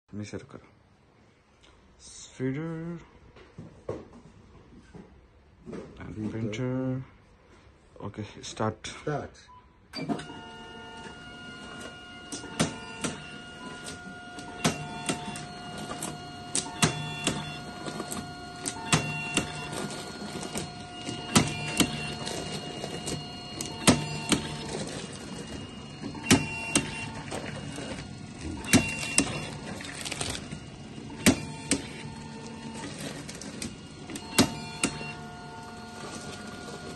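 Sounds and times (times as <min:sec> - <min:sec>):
motor whine: 0:10.2 - 0:36.9.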